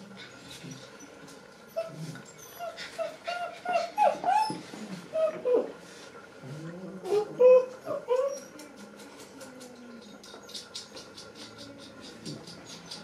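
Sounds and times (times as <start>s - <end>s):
puppy whining and yipping: 1.7s - 5.7s, 7.1s - 8.5s.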